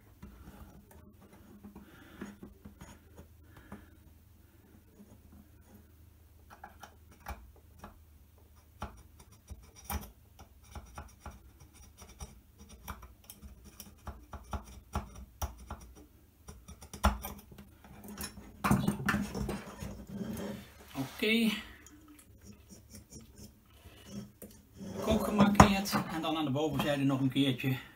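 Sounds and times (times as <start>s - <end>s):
hand tools scratching metal: 19.4s - 27.0s.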